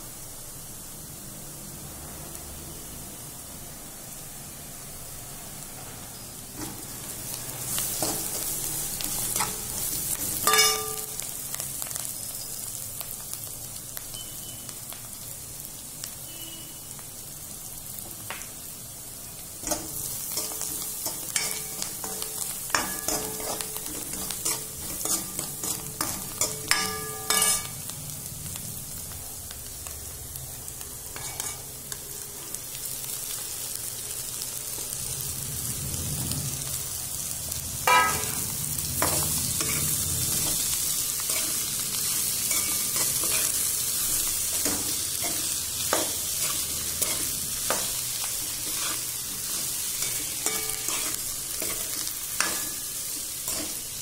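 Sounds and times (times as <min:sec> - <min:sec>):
onions sizzling in hot oil: 0:00.0 - 0:54.0
spoon clinking on pan: 0:10.4 - 0:11.2, 0:26.0 - 0:27.8
metal spoon scraping pan: 0:19.6 - 0:27.8.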